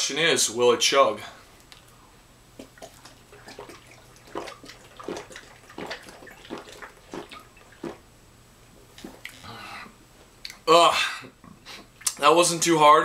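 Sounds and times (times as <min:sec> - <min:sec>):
person gulping liquid: 0:02.6 - 0:08.1, 0:08.9 - 0:09.5.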